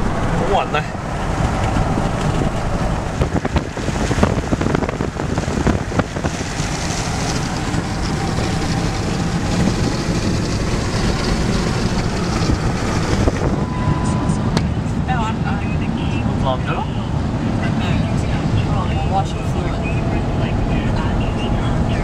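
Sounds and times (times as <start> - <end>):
road and wind noise in car: 0.0 - 22.0.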